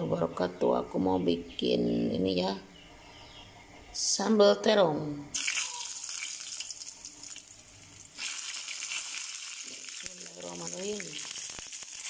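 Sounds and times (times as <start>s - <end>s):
eggplant sizzling in oil: 5.3s - 12.0s.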